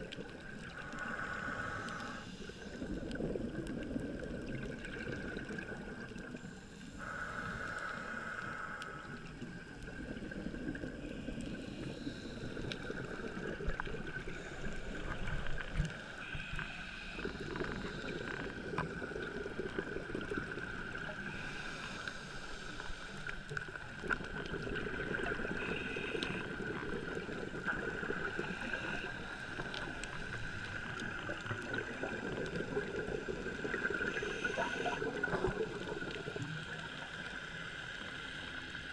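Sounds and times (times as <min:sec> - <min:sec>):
exhaled bubbles underwater: 0:00.0 - 0:38.9
scuba regulator breathing: 0:00.7 - 0:03.0, 0:06.4 - 0:09.4, 0:11.1 - 0:19.3, 0:21.2 - 0:23.5, 0:25.4 - 0:31.2, 0:32.6 - 0:37.6.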